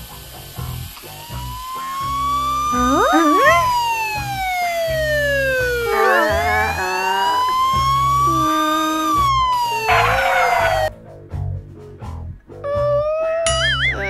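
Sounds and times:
police siren wailing: 1.2s - 10.9s.

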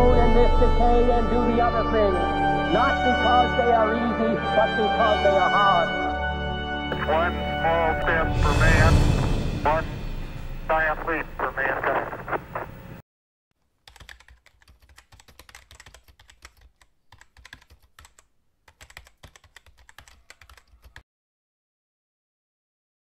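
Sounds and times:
keyboard typing clicks: 13.8s - 21.0s.

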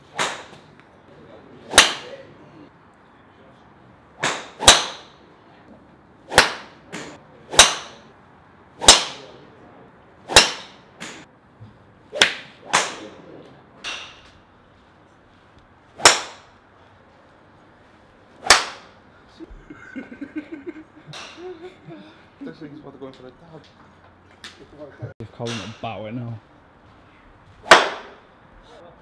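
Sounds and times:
golf drivers striking balls: 0.0s - 0.8s, 1.6s - 2.2s, 4.1s - 5.3s, 6.2s - 8.2s, 8.8s - 9.4s, 10.2s - 11.3s, 12.1s - 14.5s, 15.9s - 16.6s, 18.4s - 19.0s, 21.1s - 21.5s, 25.4s - 26.1s, 27.6s - 28.3s.

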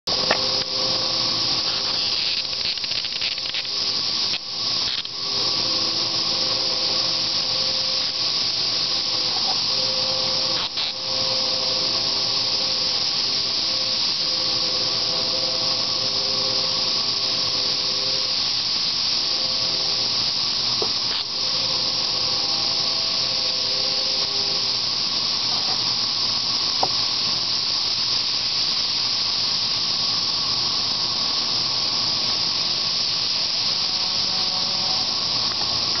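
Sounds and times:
cicada chorus: 0.1s - 36.0s.

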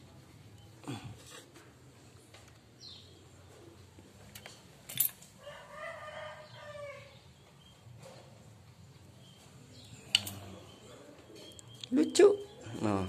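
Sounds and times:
rooster crowing: 5.4s - 7.2s.

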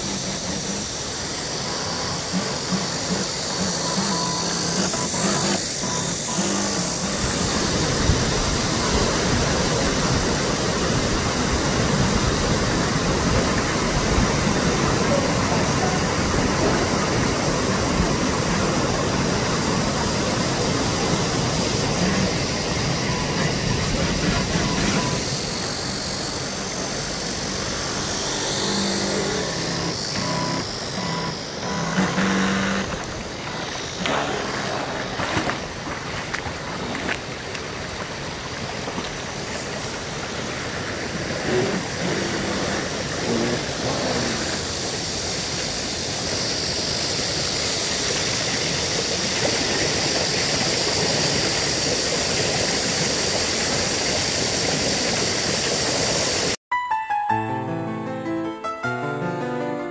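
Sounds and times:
river water rushing: 0.0s - 46.5s
toy boat motor humming: 0.0s - 56.6s.

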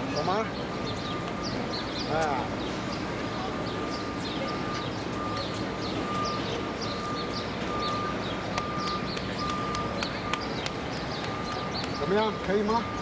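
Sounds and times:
traffic hum: 0.0s - 13.0s
small birds chirping: 0.1s - 13.0s.

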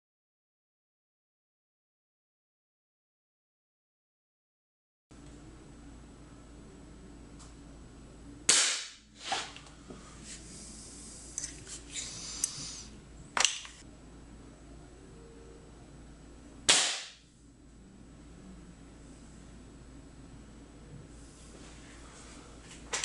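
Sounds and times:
air rifle shots: 8.5s - 9.0s, 16.7s - 17.2s.

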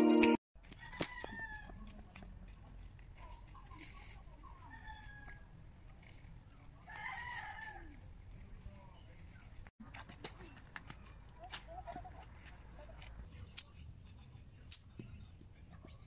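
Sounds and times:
chickens clucking: 9.8s - 13.2s.

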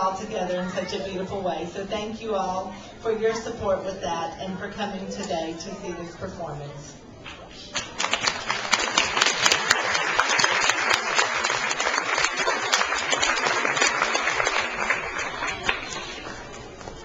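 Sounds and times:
audience applauding: 7.8s - 16.6s.

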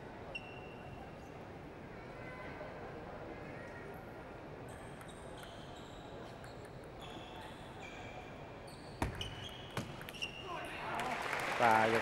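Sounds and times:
sports hall background: 0.0s - 12.0s.

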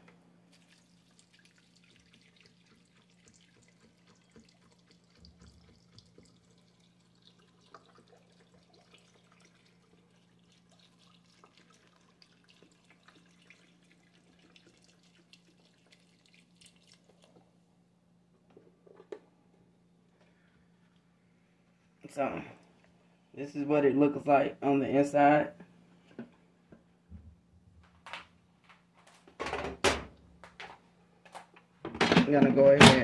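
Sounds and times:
broth pouring into pot: 0.5s - 17.4s.

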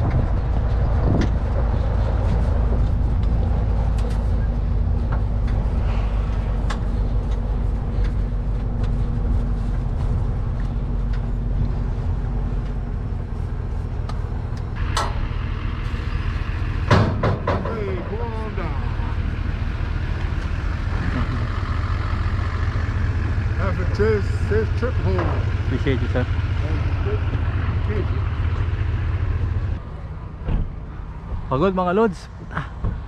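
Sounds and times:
light rattles and clicks: 0.0s - 15.2s
truck engine running: 0.0s - 32.0s.

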